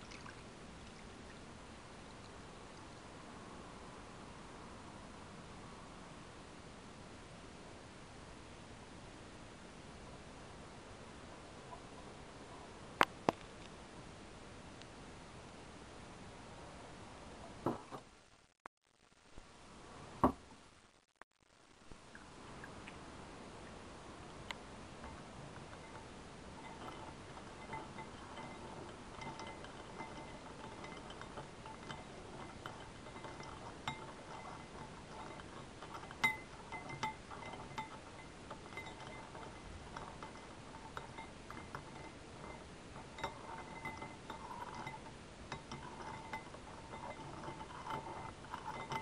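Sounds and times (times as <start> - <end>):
spoon stirring liquid: 25.0 - 49.0
spoon clinking on glass: 26.6 - 49.0.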